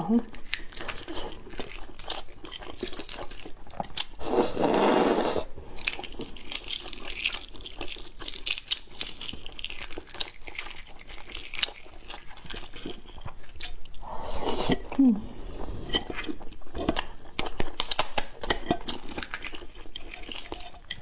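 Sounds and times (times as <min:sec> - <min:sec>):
eggshell cracking: 0:05.8 - 0:14.0, 0:16.4 - 0:21.0.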